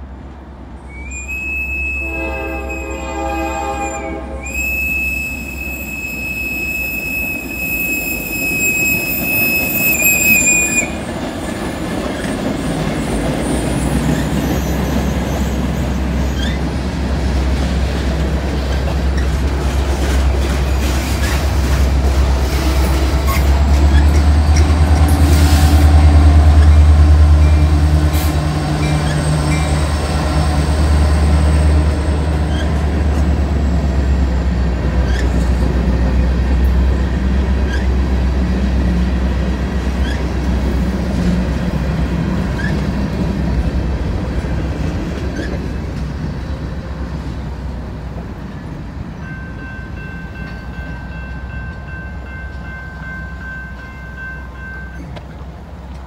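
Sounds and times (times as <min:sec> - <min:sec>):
locomotive diesel engine: 0:04.6 - 0:49.2
freight cars rolling over rails: 0:04.7 - 0:48.4
train wheel clicks: 0:18.0 - 0:27.0.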